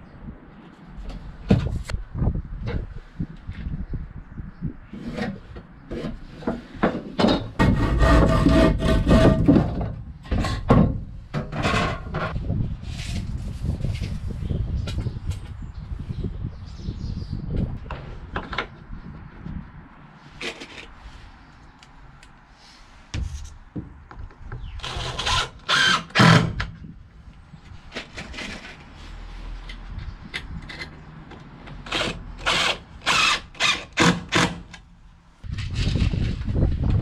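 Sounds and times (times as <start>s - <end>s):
cordless driver driving screws: 24.8s - 26.5s.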